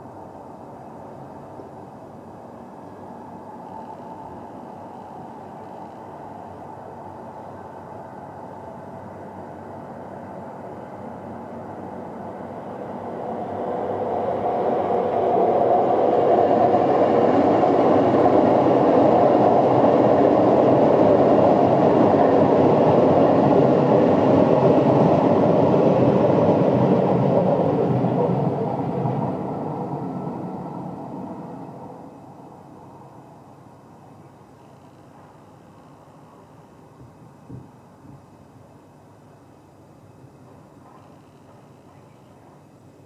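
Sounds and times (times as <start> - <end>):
jet engines spooling up: 11.0 - 33.2.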